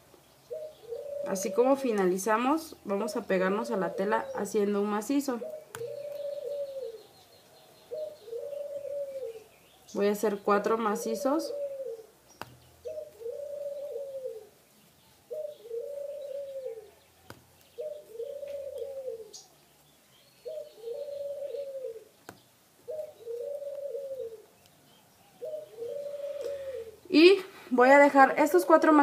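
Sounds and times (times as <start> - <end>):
dove cooing: 0.5 - 9.5, 10.3 - 12.2, 12.8 - 14.6, 15.2 - 17.1, 17.7 - 19.6, 20.4 - 22.1, 22.8 - 24.6, 25.2 - 27.4, 28.2 - 29.0.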